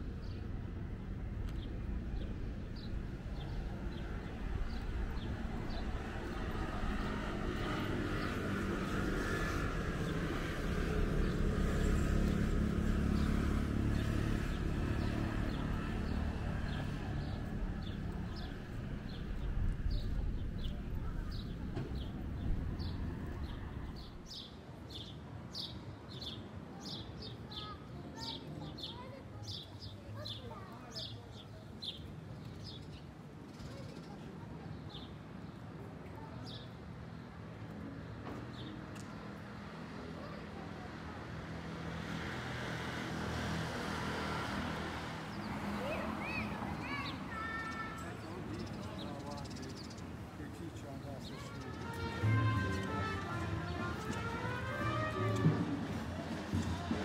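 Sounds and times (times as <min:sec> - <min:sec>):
vehicle engine passing: 0:02.3 - 0:24.3, 0:51.4 - 0:57.0
small birds chirping: 0:45.2 - 0:54.4.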